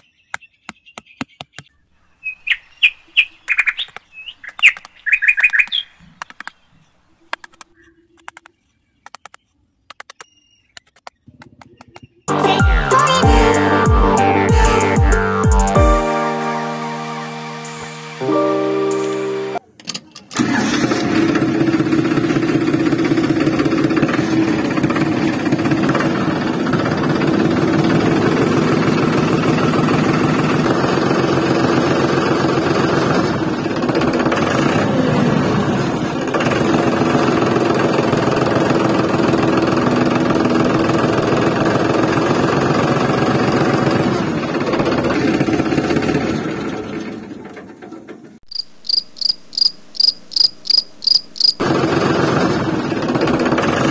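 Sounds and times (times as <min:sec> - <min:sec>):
tractor engine chugging: 0:20.4 - 0:48.4, 0:51.4 - 0:53.9.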